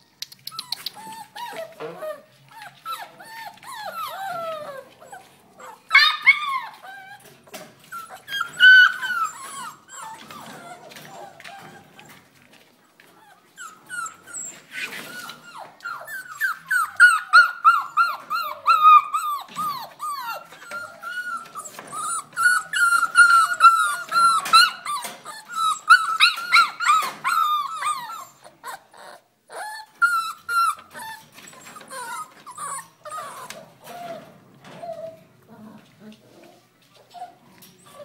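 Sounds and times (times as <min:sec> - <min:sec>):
puppies whining and yelping: 0:00.5 - 0:12.4, 0:13.0 - 0:38.0.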